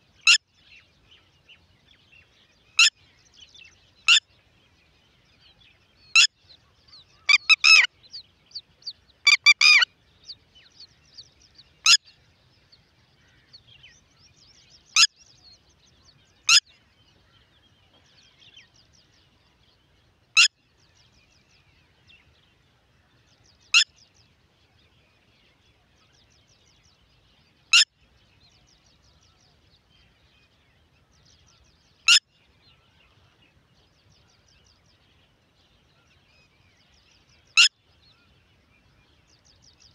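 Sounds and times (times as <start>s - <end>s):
faint twittering of small birds: 0.0s - 39.9s
lapwing calling: 6.1s - 6.3s, 7.2s - 7.9s, 9.2s - 9.9s.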